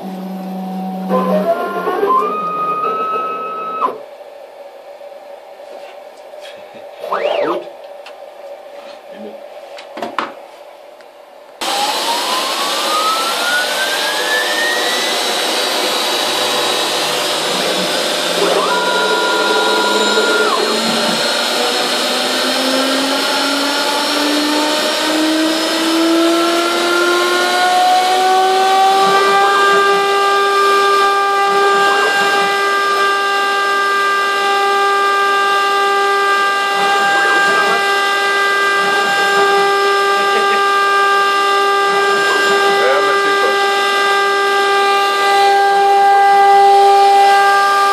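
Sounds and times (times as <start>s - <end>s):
loud machine noise: 0.0s - 4.1s, 7.0s - 7.7s, 11.6s - 47.9s
spindle motor whine: 0.0s - 4.4s, 7.0s - 7.9s, 11.6s - 47.9s
two-note tone: 0.1s - 4.0s.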